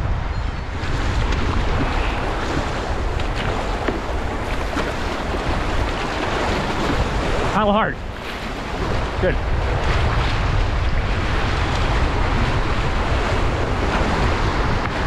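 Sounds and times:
wind rumble on microphone: 0.0 - 15.0
river water rushing: 0.7 - 10.6.

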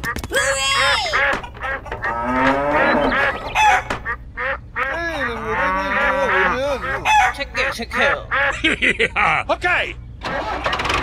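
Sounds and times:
goose honking: 0.0 - 8.6
cow mooing: 1.9 - 3.8, 5.4 - 6.5.

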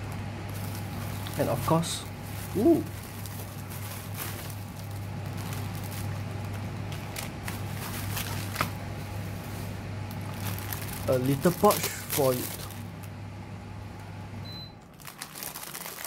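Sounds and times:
bubble wrap crinkling: 0.0 - 13.2, 14.9 - 16.0
steady low hum: 0.0 - 15.0
short voiced sound: 2.5 - 2.9.

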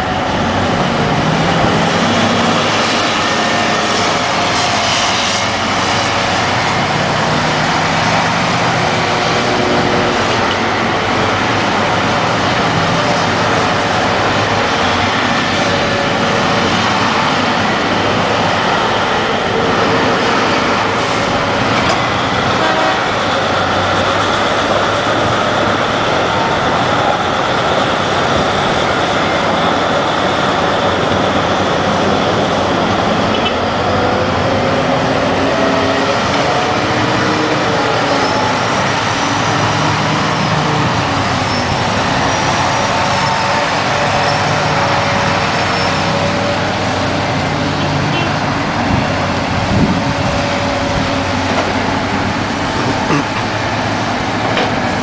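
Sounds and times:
diesel engine drone: 0.0 - 55.0.

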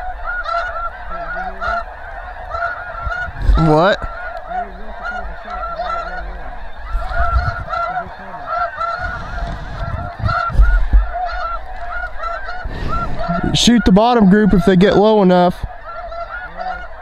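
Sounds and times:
geese honking: 0.0 - 17.0
low bumps: 8.9 - 15.8.

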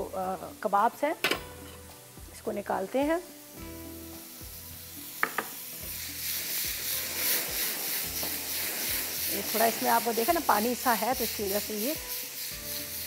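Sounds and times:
meat sizzling in hot oil: 0.0 - 13.0
oil spitting: 4.9 - 13.0
pan knock: 5.2 - 5.5.

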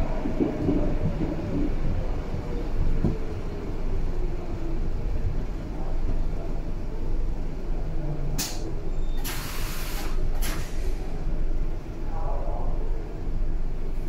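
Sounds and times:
train running rumble: 0.0 - 14.0
compressed air hiss: 9.2 - 11.0.

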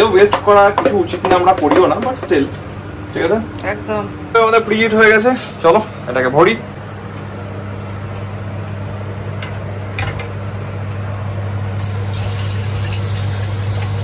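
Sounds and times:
microwave oven humming: 0.0 - 14.0
hiss: 11.8 - 14.0.

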